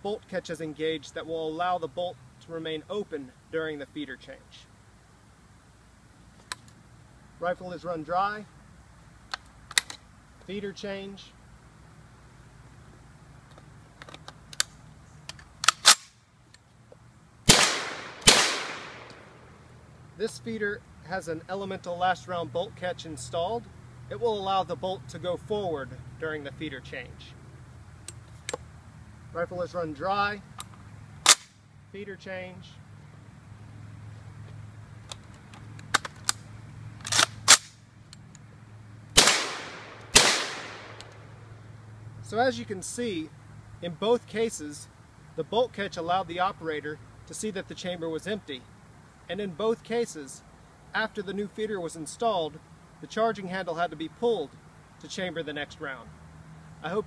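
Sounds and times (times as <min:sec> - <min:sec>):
metal clicks of gun reloading: 0:14.0 - 0:16.6, 0:35.1 - 0:36.4, 0:37.0 - 0:38.4
shotgun action clacking: 0:17.5 - 0:19.3, 0:39.2 - 0:41.2
shotgun shots echoing: 0:17.5 - 0:19.5, 0:39.2 - 0:41.4
light metallic clicks: 0:28.0 - 0:28.7, 0:39.5 - 0:41.2.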